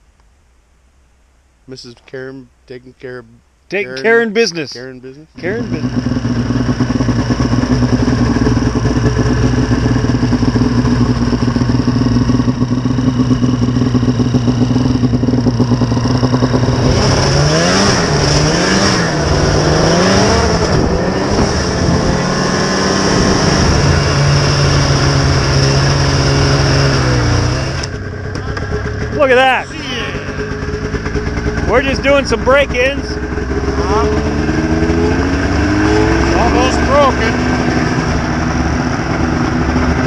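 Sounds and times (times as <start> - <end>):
snowmobile engine idling and revving: 2.9 - 40.0.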